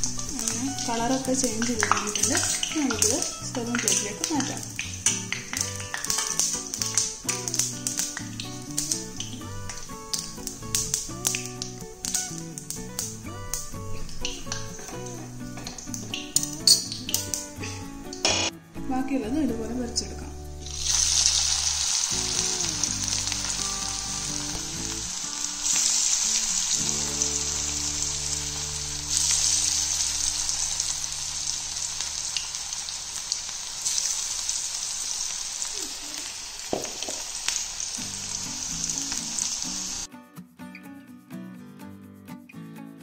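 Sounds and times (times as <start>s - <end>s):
batter deep-frying in oil: 0.0s - 18.5s, 20.6s - 40.1s.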